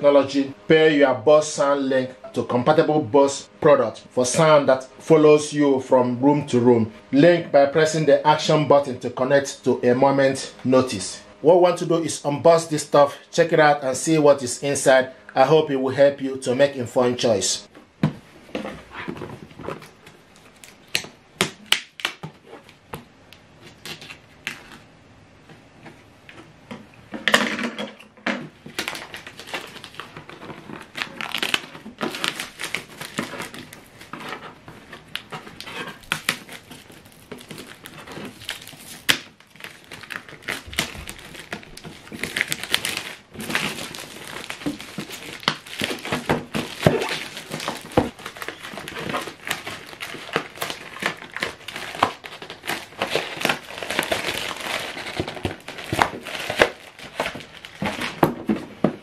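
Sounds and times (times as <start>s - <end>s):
plastic shrink-wrap crinkling: 28.5s - 59.0s.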